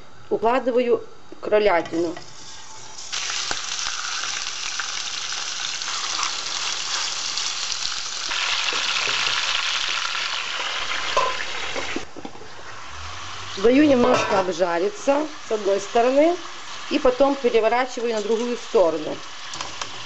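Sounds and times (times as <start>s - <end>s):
meat sizzling in oil: 2.4s - 12.0s, 14.5s - 20.0s.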